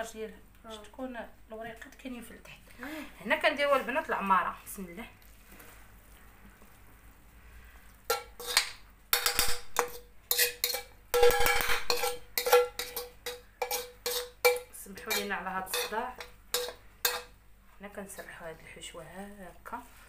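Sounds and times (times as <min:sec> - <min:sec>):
metal spatula clanking in wok: 0:08.1 - 0:17.3.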